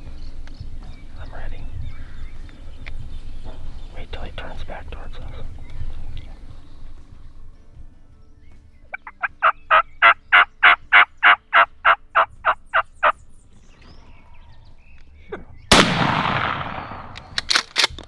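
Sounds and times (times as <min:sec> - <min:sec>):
wild turkey yelps: 0:08.9 - 0:13.2
shotgun blast: 0:15.7 - 0:17.7.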